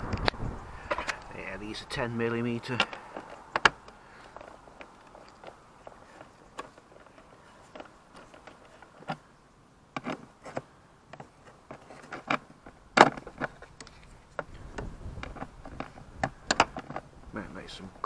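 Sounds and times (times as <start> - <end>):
wind rumble on microphone: 0.0 - 1.4, 14.4 - 17.5.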